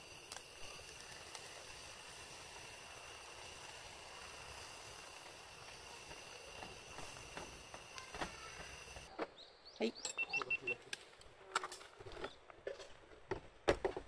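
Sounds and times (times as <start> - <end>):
egg sizzling on griddle: 0.0 - 9.1.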